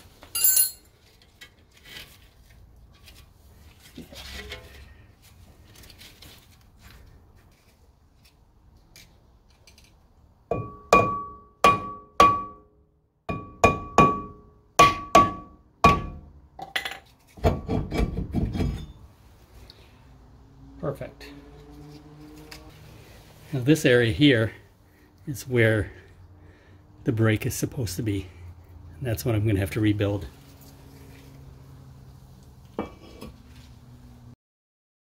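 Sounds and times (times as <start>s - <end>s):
metal scraping and clunking: 4.0s - 5.0s, 32.7s - 33.8s
mallet striking metal brake disc: 10.5s - 16.3s.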